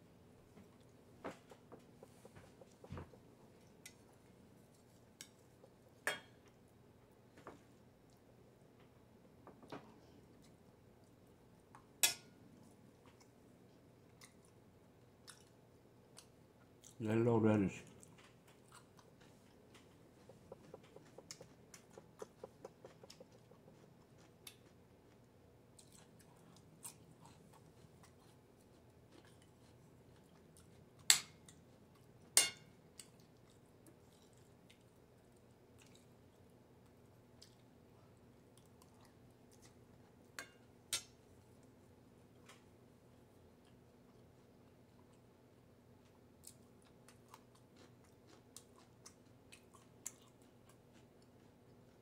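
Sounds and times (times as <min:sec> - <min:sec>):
chewing crunchy food: 0:12.7 - 0:17.0, 0:17.8 - 0:52.0.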